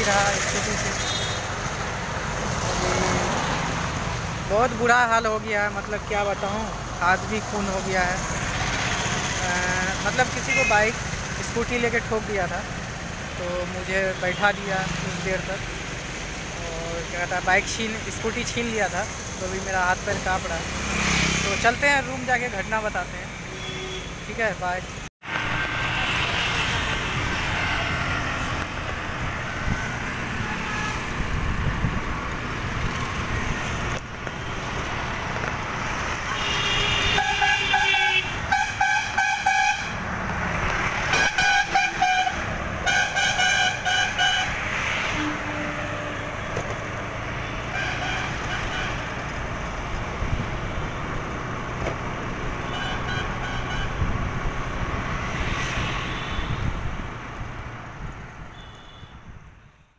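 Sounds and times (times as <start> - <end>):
road traffic: 0.0 - 59.9
vehicle horns honking: 0.9 - 1.5, 10.4 - 10.9, 23.4 - 24.2, 36.3 - 40.0, 41.0 - 46.7, 47.4 - 49.2, 52.6 - 54.1, 55.8 - 56.8, 58.5 - 59.3
wind rumble: 26.8 - 36.2.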